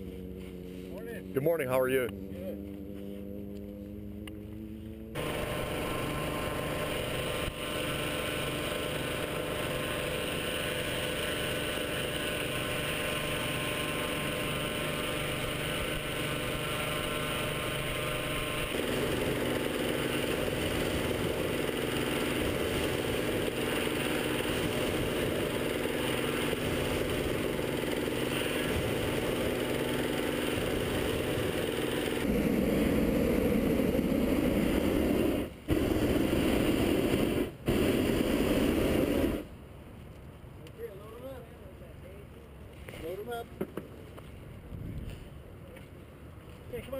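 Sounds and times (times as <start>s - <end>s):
inflator fan engine running: 5.2s - 39.4s
propane burner roaring: 5.2s - 39.5s.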